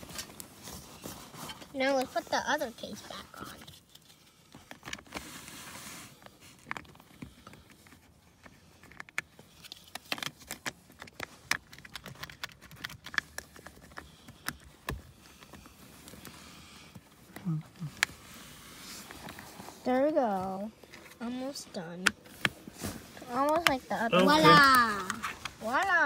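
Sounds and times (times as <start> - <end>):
plastic clicks and rattles: 8.8 - 15.0.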